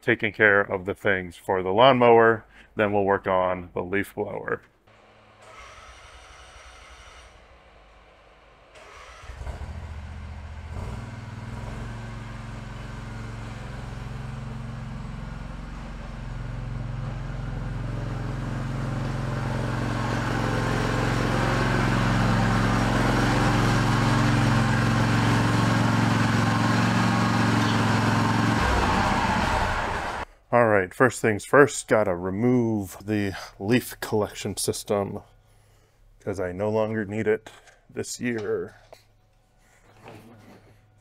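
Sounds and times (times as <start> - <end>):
riding lawn mower engine: 4.9 - 30.2.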